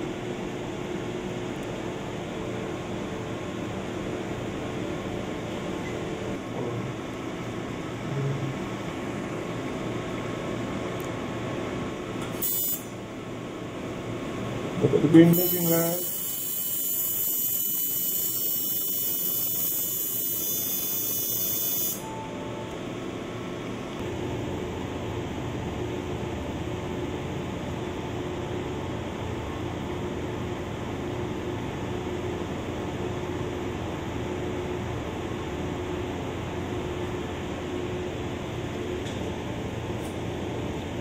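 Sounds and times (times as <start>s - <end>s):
equipment and ventilation hum: 0.0s - 41.0s
laser firing with high hiss: 15.4s - 22.0s.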